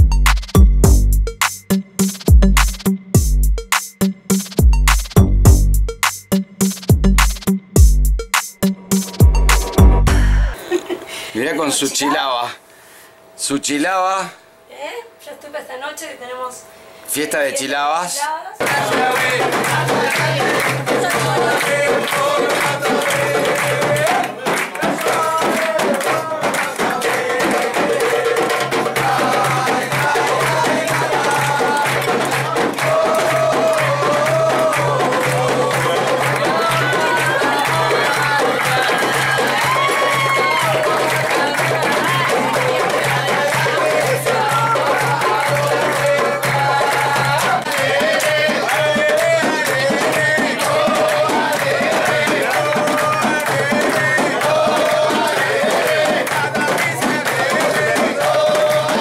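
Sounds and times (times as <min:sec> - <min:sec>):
people clapping along: 0:00.0 - 0:03.0, 0:03.7 - 0:10.6, 0:18.6 - 0:59.0
frame drums beaten rhythmically: 0:00.0 - 0:10.6, 0:18.6 - 0:59.0
men singing: 0:18.6 - 0:59.0.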